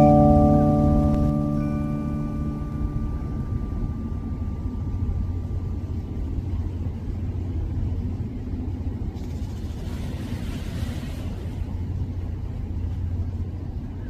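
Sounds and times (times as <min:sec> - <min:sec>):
background music: 0:00.0 - 0:06.0
steady low rumble: 0:00.0 - 0:10.4, 0:11.3 - 0:14.0.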